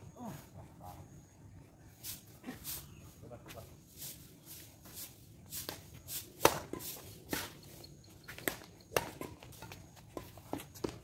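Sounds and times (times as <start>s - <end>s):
racket hitting shuttlecock: 6.4s - 7.6s, 8.3s - 11.0s.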